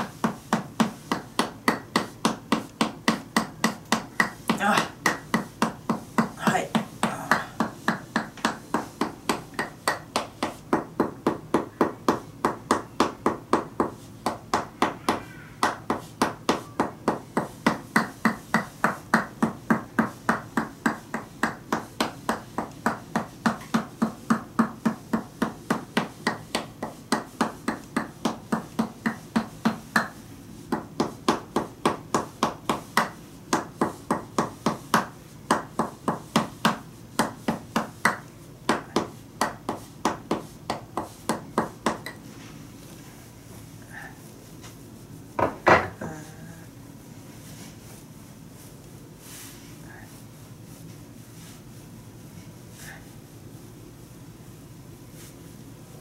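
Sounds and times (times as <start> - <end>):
wooden mallet tapping wooden wedge: 0.0 - 42.2.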